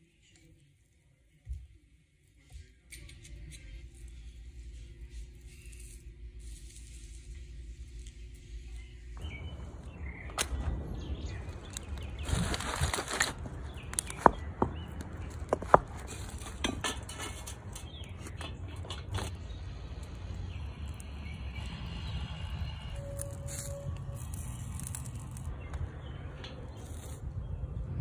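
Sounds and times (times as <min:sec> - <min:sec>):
firewood knocking and clattering: 0:10.2 - 0:19.5.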